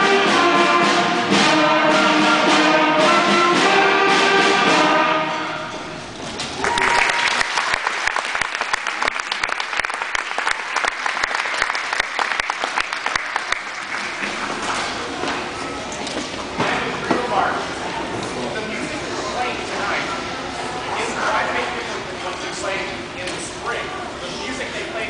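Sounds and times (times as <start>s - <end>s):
brass band playing: 0.0s - 6.1s
audience applauding: 6.2s - 15.1s.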